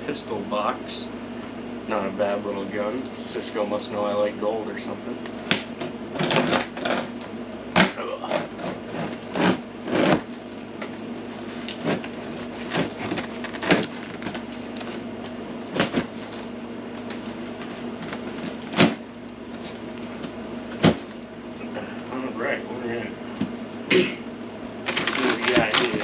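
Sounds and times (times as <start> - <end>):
air conditioner hum: 0.0 - 26.0
box cutter slicing tape: 5.5 - 7.2, 7.8 - 10.3, 18.4 - 19.0
scrapes and knocks on cardboard: 7.8 - 10.3, 11.6 - 15.0.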